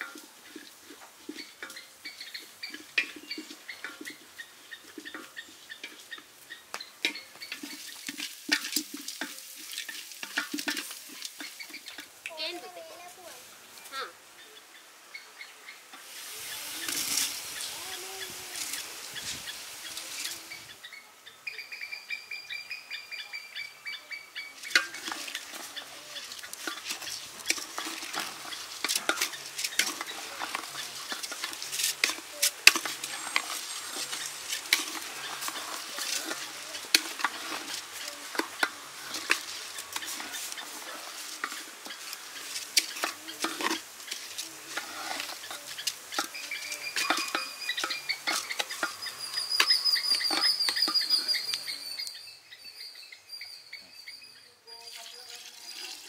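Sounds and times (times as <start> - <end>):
ladle scraping rice in metal pot: 0.0 - 6.2, 7.0 - 12.1, 16.1 - 17.7, 24.6 - 51.9
bird calling high notes: 46.3 - 55.4.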